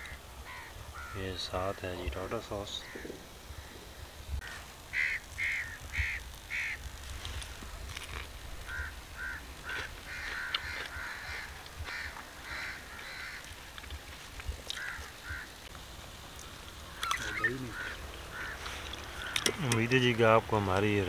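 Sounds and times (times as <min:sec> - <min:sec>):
crow cawing: 0:00.0 - 0:01.8, 0:02.7 - 0:03.8, 0:04.4 - 0:06.8, 0:08.7 - 0:13.6, 0:14.7 - 0:15.6, 0:16.9 - 0:19.7.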